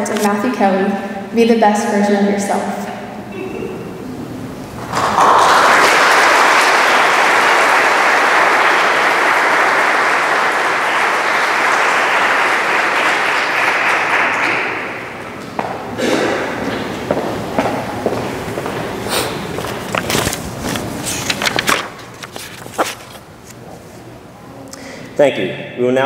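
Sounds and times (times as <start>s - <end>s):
audience applauding: 4.8s - 15.6s
footsteps: 14.4s - 24.0s.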